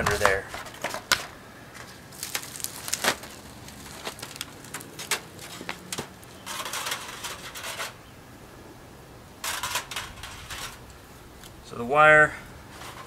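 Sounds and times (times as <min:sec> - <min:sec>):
wire scraping wire mesh: 0:02.1 - 0:08.1, 0:09.4 - 0:11.0, 0:12.6 - 0:13.0.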